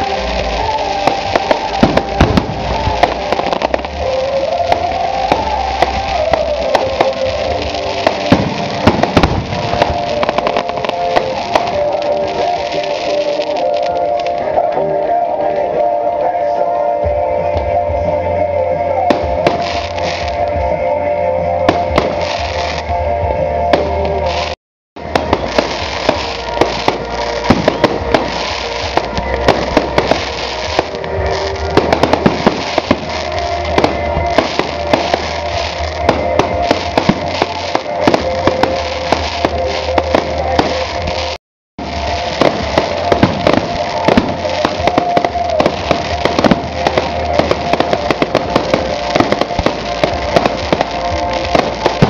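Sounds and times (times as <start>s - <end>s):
fireworks cracking and popping: 0.0s - 15.8s, 19.0s - 20.7s, 21.6s - 23.0s, 23.7s - 52.0s
music playing: 0.0s - 52.0s.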